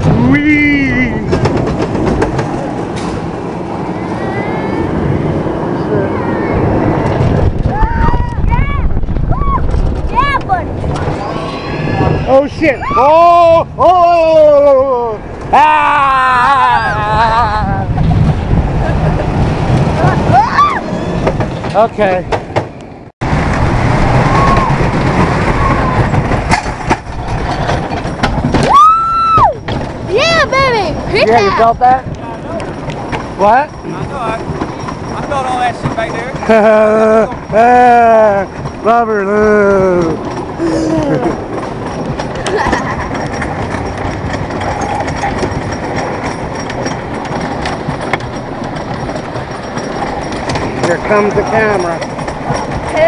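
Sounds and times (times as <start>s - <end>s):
roller coaster wheels rumbling: 0.0s - 53.0s.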